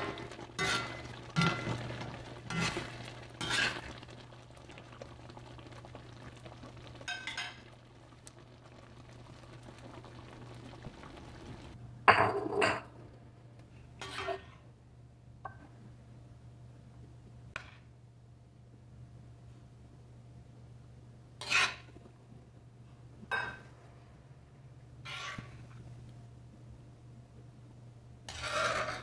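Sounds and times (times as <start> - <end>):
low steady hum: 0.0 - 28.4
metal spoon scraping a wok: 0.6 - 1.6, 2.5 - 2.8, 3.4 - 3.8, 14.0 - 14.5, 21.4 - 21.9, 25.0 - 25.6, 28.3 - 29.0.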